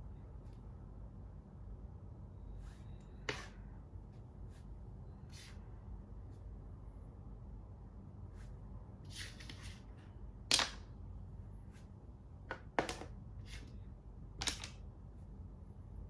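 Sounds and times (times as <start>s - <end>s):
chess pieces clicking on board: 14.4s - 14.8s.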